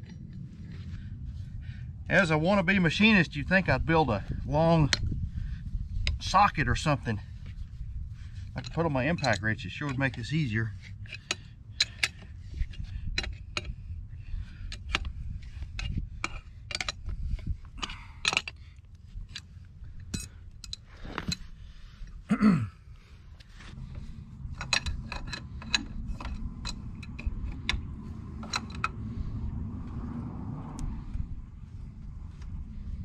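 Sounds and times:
steady low rumble: 0:00.0 - 0:33.0
wrench clicking on metal bolts: 0:08.6 - 0:10.3, 0:11.0 - 0:13.8, 0:15.8 - 0:17.0.

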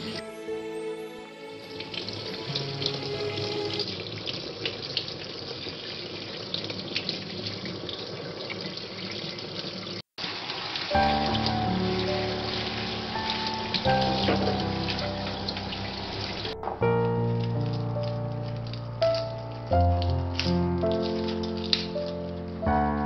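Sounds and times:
soft background music: 0:00.0 - 0:03.9, 0:10.9 - 0:23.0
tap running into a metal sink: 0:13.7 - 0:15.1.

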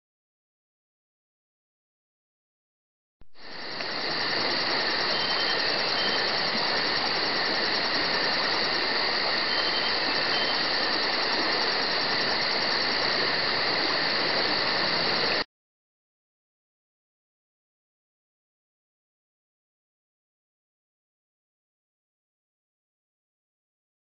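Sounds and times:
steady rushing hiss: 0:03.2 - 0:15.5.

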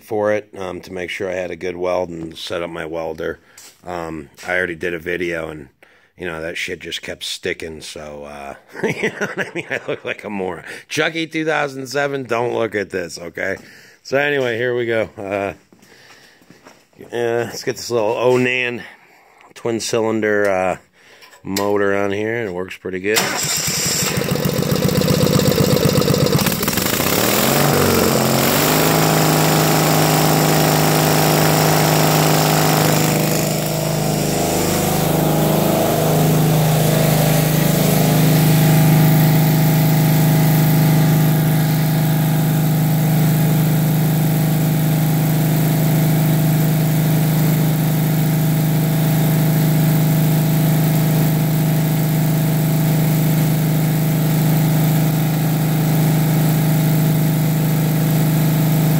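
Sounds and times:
engine running: 0:23.2 - 0:58.9.

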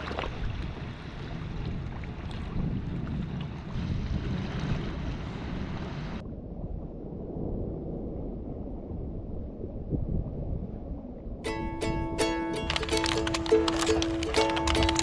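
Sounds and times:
wind buffeting microphone: 0:00.0 - 0:15.0
plucked-string music: 0:11.5 - 0:15.0
shallow water washing: 0:11.5 - 0:15.0.

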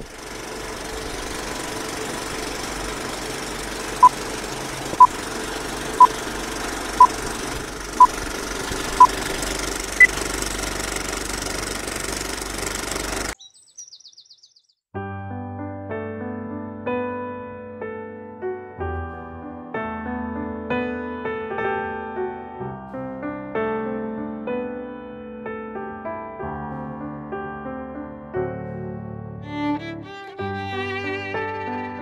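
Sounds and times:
film projector whirring: 0:00.0 - 0:13.4
piano music: 0:15.0 - 0:32.0.

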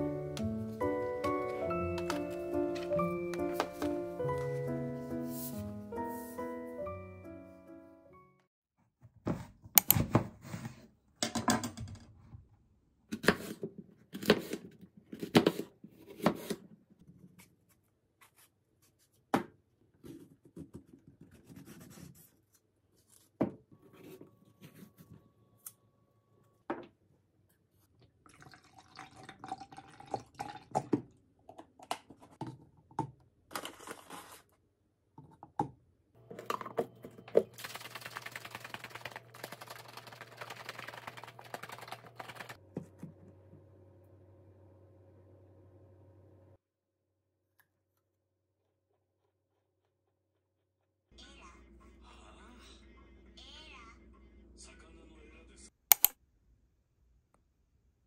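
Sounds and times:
drink shaken in plastic cup: 0:37.3 - 0:42.6.

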